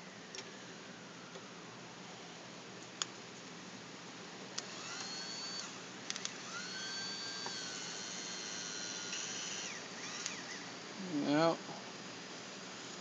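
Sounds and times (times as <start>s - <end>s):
electric motor whining: 4.6s - 10.7s.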